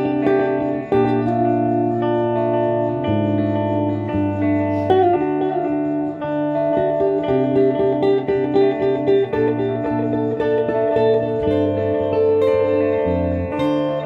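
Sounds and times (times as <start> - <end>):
guitars playing low chords: 0.0 - 14.0
picked guitar figure: 0.0 - 14.0.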